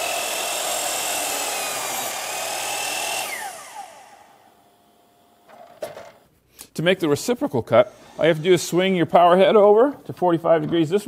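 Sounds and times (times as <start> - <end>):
saw blade winding down: 0.0 - 4.5
miter saw cutting wood: 0.0 - 5.0.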